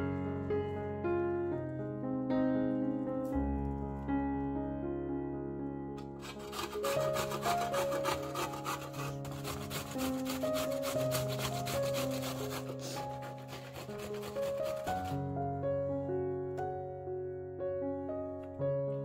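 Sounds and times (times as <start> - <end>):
piano music: 0.0 - 19.0
onion grating on metal grater: 6.2 - 15.2.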